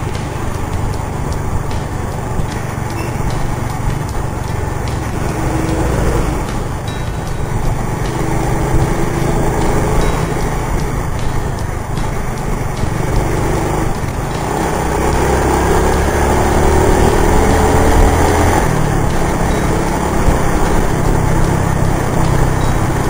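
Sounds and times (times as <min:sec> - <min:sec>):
scooter engine running: 0:00.0 - 0:23.0
wind and road noise: 0:00.0 - 0:23.0.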